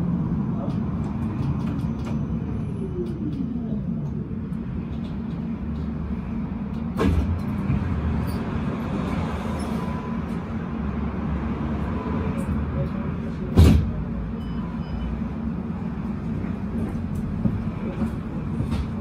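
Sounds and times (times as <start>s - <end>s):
tram electric drive whine: 0.0s - 13.6s
tram stopping clunk: 6.6s - 10.5s, 16.1s - 19.0s.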